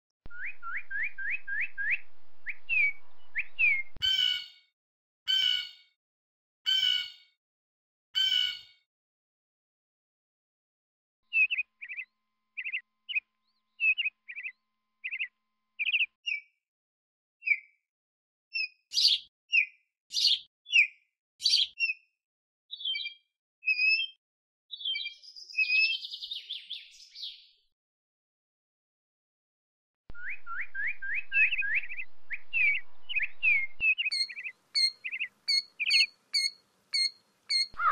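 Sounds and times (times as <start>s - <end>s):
bird fluttering trill: 0.7s - 3.9s, 30.2s - 37.9s
killdeer calling: 30.2s - 37.9s.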